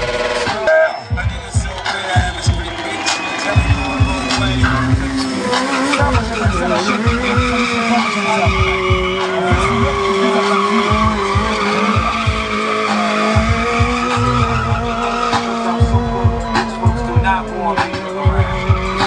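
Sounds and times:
motorcycle engine revving high: 0:00.0 - 0:19.0
tyre skidding on asphalt: 0:01.8 - 0:16.9.

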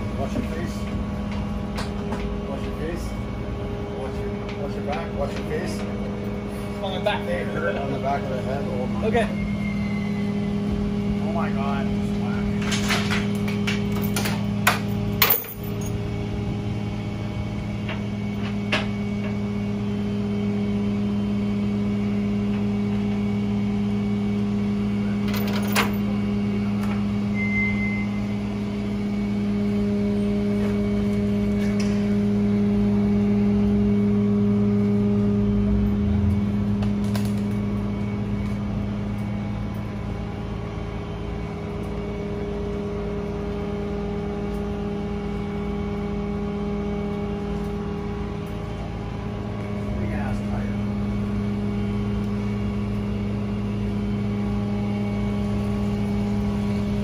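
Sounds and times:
metallic chain clanks: 0:13.9 - 0:16.0, 0:25.3 - 0:26.0
car engine idling: 0:28.1 - 0:57.0.

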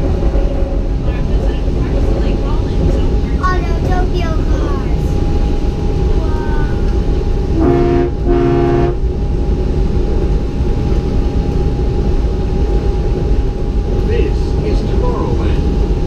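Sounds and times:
train running rumble: 0:00.0 - 0:16.0
train horn toots: 0:07.5 - 0:09.0.

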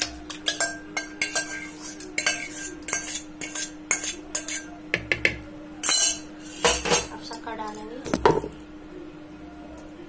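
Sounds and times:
spoon scraping and clinking jar: 0:00.3 - 0:04.7.

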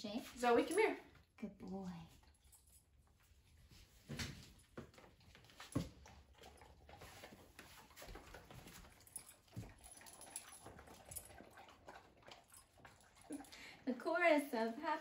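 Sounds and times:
dogs chewing and crunching treats: 0:00.4 - 0:15.0.

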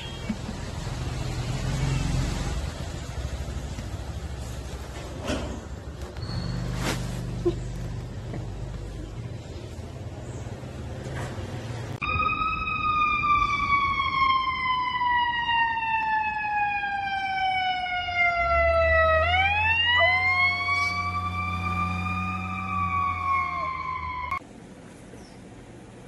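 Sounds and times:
siren wailing: 0:12.0 - 0:24.4.

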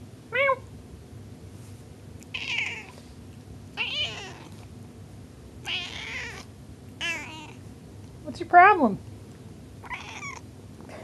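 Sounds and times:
cat meowing: 0:02.3 - 0:03.0, 0:03.8 - 0:04.6, 0:05.6 - 0:07.6, 0:09.8 - 0:10.4.

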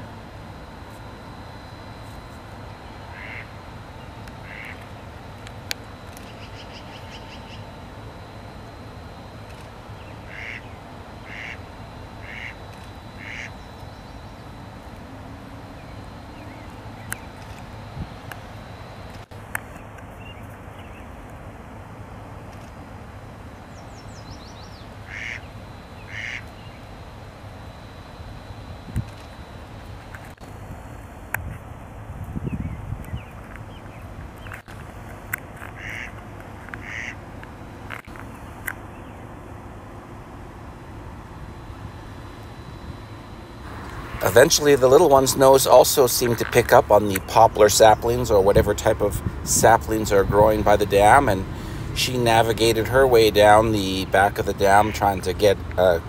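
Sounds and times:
low outdoor rumble: 0:00.0 - 0:56.0
duck quacks: 0:03.1 - 0:03.5, 0:04.4 - 0:04.8, 0:10.3 - 0:10.7, 0:11.3 - 0:11.6, 0:12.2 - 0:12.6, 0:13.2 - 0:13.5, 0:25.1 - 0:25.4, 0:26.1 - 0:26.4, 0:35.8 - 0:36.2, 0:36.8 - 0:37.2
high falling bird chirps: 0:06.2 - 0:07.8
harsh animal calls: 0:13.2 - 0:13.6.

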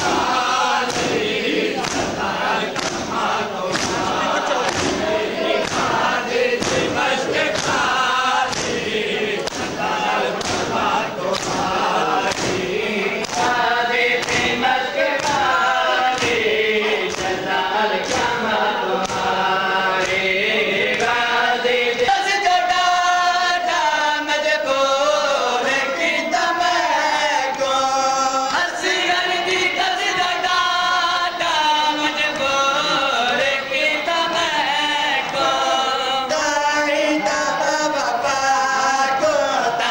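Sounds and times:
hands beating on chests: 0:00.0 - 0:13.6, 0:14.2 - 0:16.5
group singing into microphone: 0:00.0 - 0:39.9
men chanting in unison: 0:00.0 - 0:39.9.

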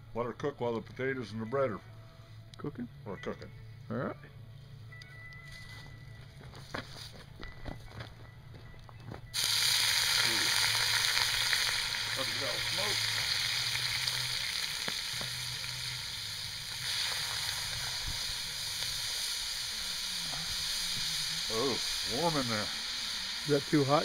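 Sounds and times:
liquid sizzling in hot pot: 0:09.3 - 0:24.0.

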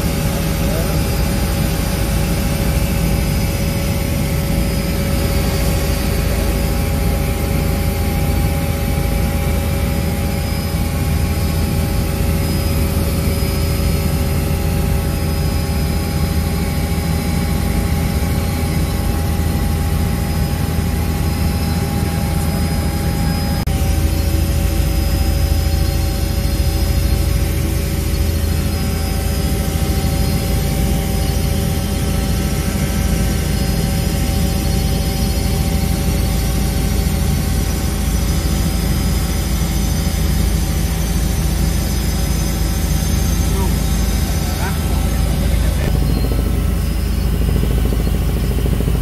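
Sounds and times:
helicopter engine and rotor: 0:00.0 - 0:49.0
whining tones: 0:42.2 - 0:49.0.

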